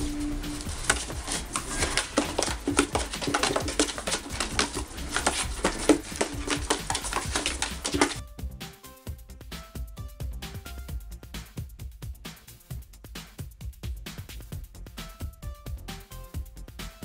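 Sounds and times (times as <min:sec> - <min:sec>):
music: 0:00.0 - 0:17.0
kitten scratching cardboard box: 0:00.1 - 0:08.2.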